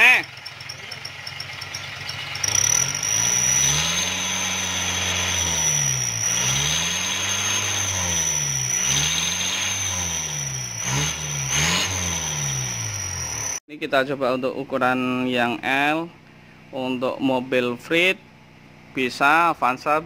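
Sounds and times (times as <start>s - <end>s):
diesel engine revving: 0.0s - 13.6s
high-pitched turbo whistle: 2.4s - 13.6s.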